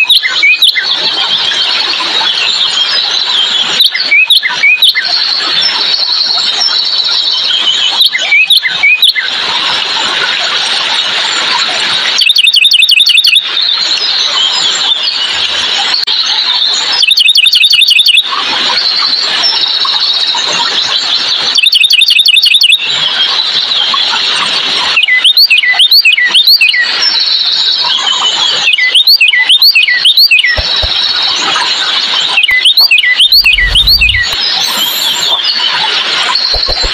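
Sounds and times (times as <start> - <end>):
cardinal whistling song: 12.2 - 13.4, 28.7 - 31.1, 32.3 - 35.8
fast bird trill: 12.2 - 13.4, 17.0 - 18.2, 21.5 - 22.8, 32.3 - 35.8, 36.4 - 36.9
high-pitched background chorus: 33.3 - 35.8.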